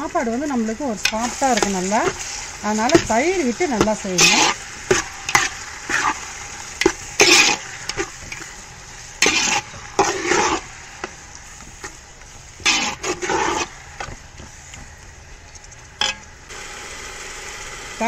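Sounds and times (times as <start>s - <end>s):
food sizzling: 0.0s - 18.0s
metal spatula scraping a pot: 1.0s - 14.1s.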